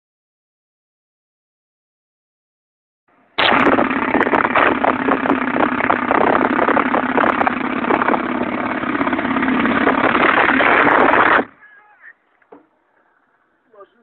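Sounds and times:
autocannon firing continuous burst: 3.4s - 11.6s.

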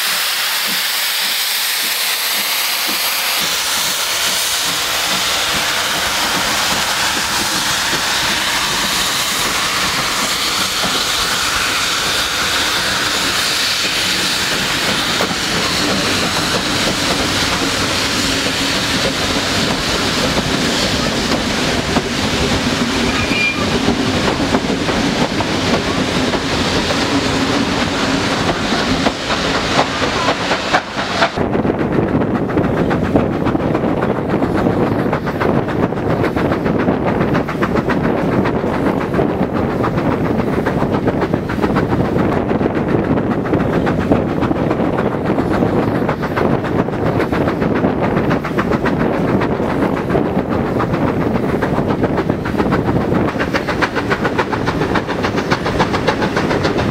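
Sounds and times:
steam hissing: 0.0s - 31.4s, 50.6s - 56.9s
train wheels clicking over rail joints: 0.0s - 56.9s.

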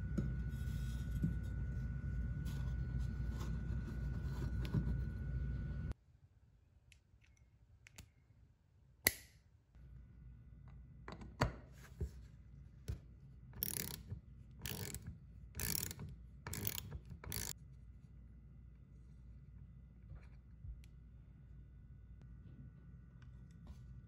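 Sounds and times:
ratchet wrench clicking: 13.6s - 17.6s.

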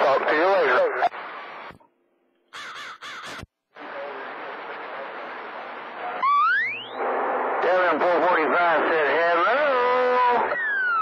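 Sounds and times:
harsh radio squawks: 0.0s - 1.7s, 2.5s - 4.9s
radio static hiss: 0.0s - 1.8s, 3.7s - 6.2s, 6.9s - 10.6s
rising electronic tone: 6.2s - 7.2s.

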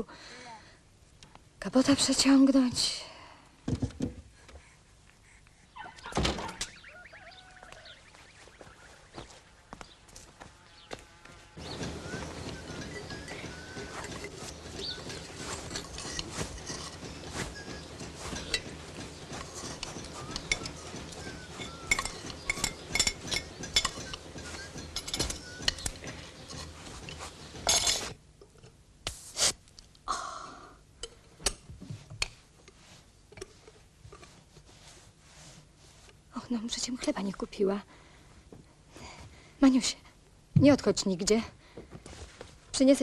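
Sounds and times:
steady background hum: 0.0s - 43.0s
household items clinking and knocking: 11.6s - 28.6s.

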